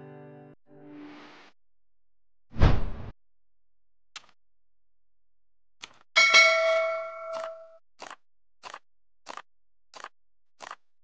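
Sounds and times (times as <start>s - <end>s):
notification bell ding: 6.2s - 7.8s.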